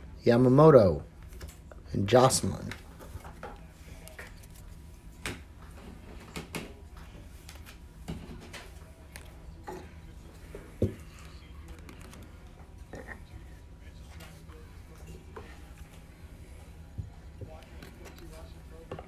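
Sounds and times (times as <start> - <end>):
trading cards clicking and rustling: 4.0 - 5.4, 11.2 - 12.5.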